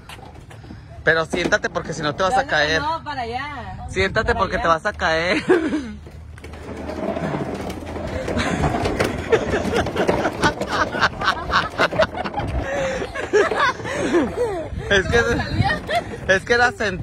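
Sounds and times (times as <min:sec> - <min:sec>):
pipe rolling over concrete: 0:00.0 - 0:03.2, 0:04.2 - 0:17.0
knocks and rattles: 0:06.0 - 0:17.0.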